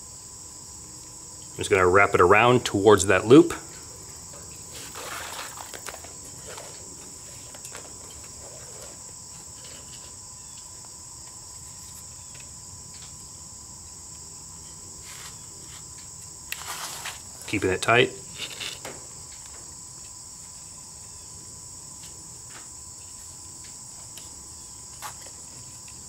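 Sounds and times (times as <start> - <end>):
insects trilling: 0.0 - 26.0
cord rustling around wooden pole: 3.6 - 13.1, 14.5 - 19.6.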